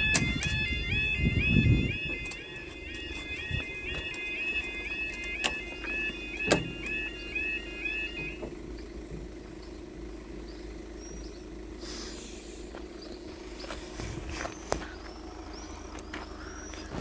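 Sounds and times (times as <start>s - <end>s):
level crossing alarm warbling: 0.0s - 8.5s
steady low hum: 0.0s - 17.0s.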